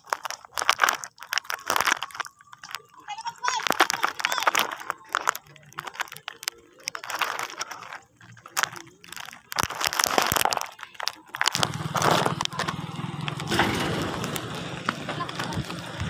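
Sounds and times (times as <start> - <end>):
footsteps on gritty concrete: 0.0 - 16.0
motorcycle engine drone: 11.5 - 16.0.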